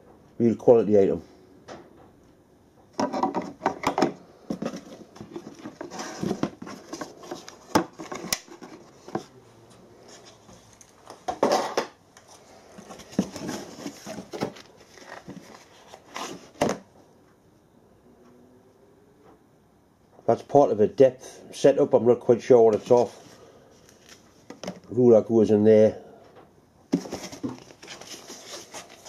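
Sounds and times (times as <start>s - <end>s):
cardboard rustling and scraping: 3.0s - 9.4s, 10.0s - 16.9s, 22.7s - 24.9s, 26.9s - 29.0s.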